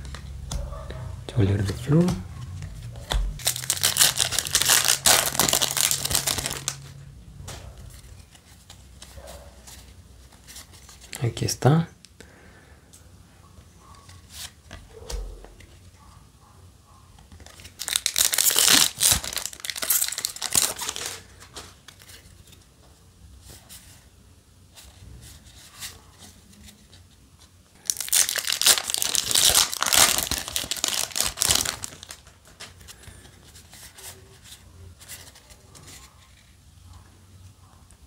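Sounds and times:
cards being handled: 0.0s - 0.7s, 1.4s - 11.4s, 17.2s - 22.7s, 24.8s - 36.5s
foil wrapper tearing and crinkling: 3.4s - 6.9s, 17.4s - 21.3s, 27.8s - 32.6s.

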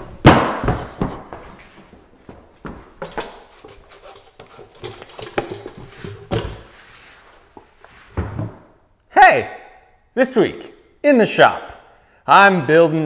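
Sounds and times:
footsteps on wooden workbench: 0.0s - 8.7s.

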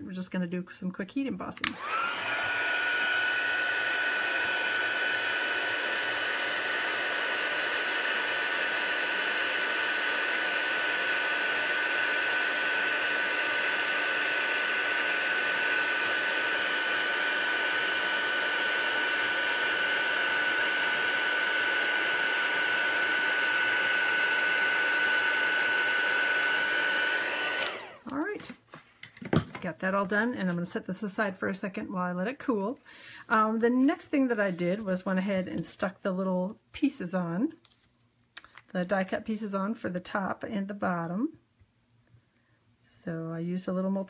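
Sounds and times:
heat tool fan whining: 1.7s - 28.5s.

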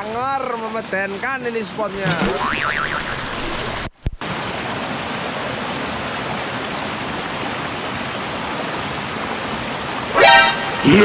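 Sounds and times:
creek rushing over rocks: 0.0s - 11.0s
water spout splashing: 1.9s - 4.2s.

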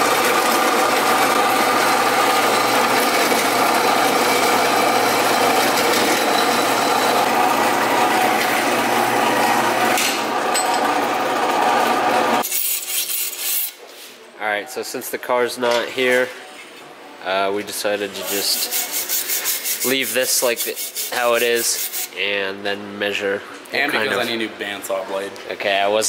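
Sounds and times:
metal bandsaw whirring: 0.0s - 12.4s.

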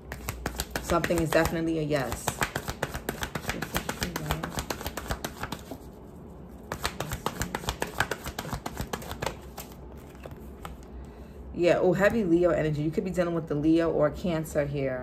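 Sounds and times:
cards being shuffled: 0.0s - 10.9s.

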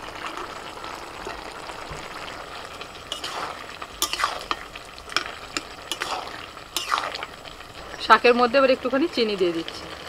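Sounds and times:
low sizzle: 0.0s - 10.0s
metal spatula scraping a pan: 3.1s - 7.3s.

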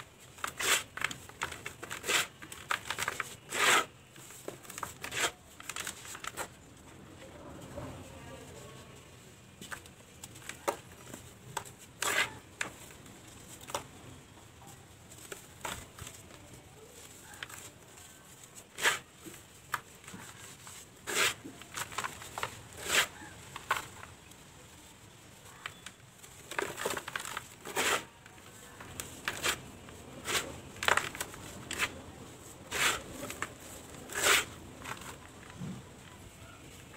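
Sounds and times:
dry dirt balls crunching by hand: 0.0s - 6.7s, 15.2s - 24.3s, 25.0s - 36.1s.

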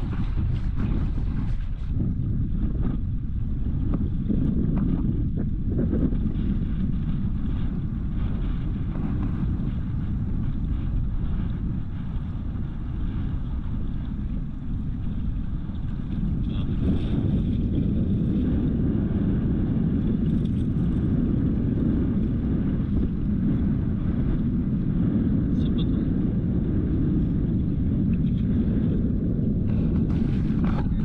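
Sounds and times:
boat engine rumble: 0.0s - 31.0s
wind buffeting microphone: 0.0s - 31.0s.

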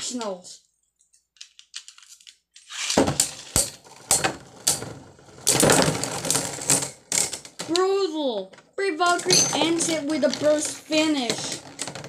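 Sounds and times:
plastic tops clattering apart: 3.0s - 7.9s, 9.0s - 12.0s.

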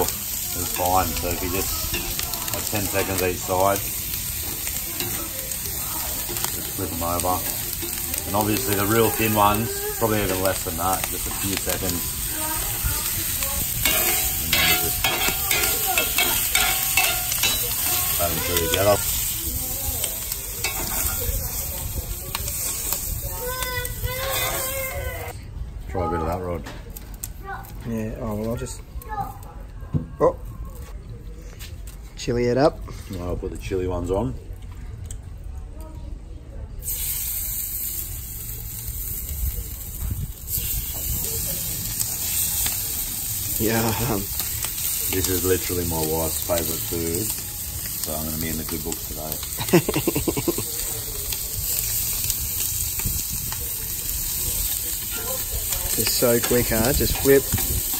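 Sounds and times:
squid sizzling on a hotplate: 0.0s - 25.3s, 36.8s - 57.9s
metal tongs clicking and scraping: 0.7s - 3.2s, 13.3s - 19.3s, 20.1s - 21.2s, 55.8s - 57.9s.

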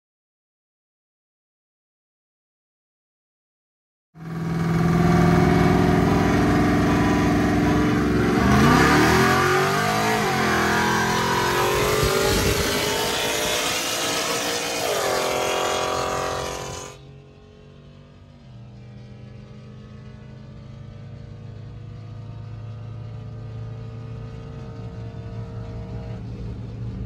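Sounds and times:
pickup truck engines accelerating: 4.2s - 17.0s.

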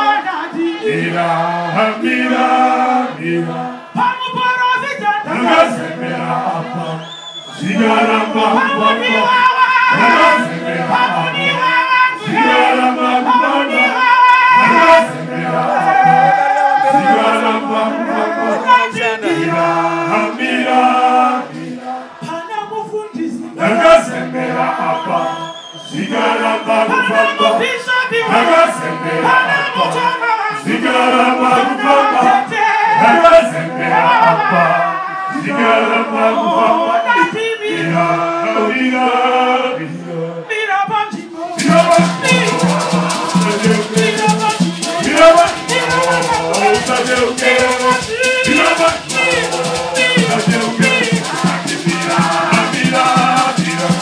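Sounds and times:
male choir singing: 0.0s - 54.0s
woman singing lead: 18.2s - 19.8s.

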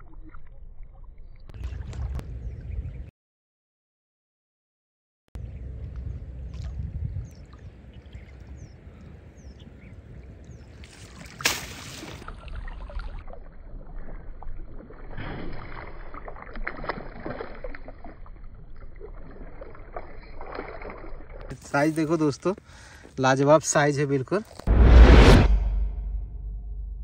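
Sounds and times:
water splashing and sloshing: 0.0s - 2.7s, 5.8s - 8.9s, 10.1s - 22.5s
loud splash: 11.0s - 13.2s.

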